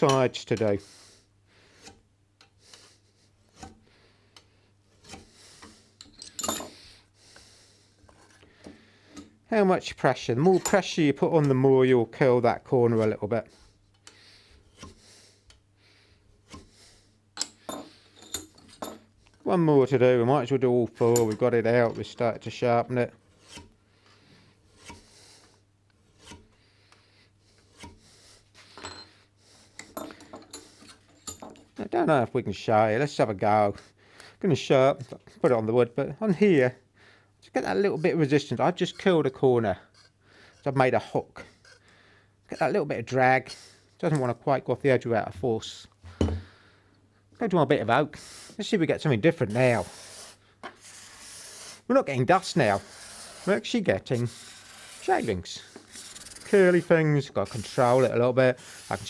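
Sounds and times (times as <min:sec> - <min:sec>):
burnisher scraping steel edge: 0:02.7 - 0:03.8, 0:04.9 - 0:06.8, 0:14.2 - 0:15.1, 0:21.0 - 0:23.8, 0:24.7 - 0:26.5, 0:27.5 - 0:29.0, 0:49.4 - 0:59.0
metal rubbing on metal: 0:49.3 - 0:59.0.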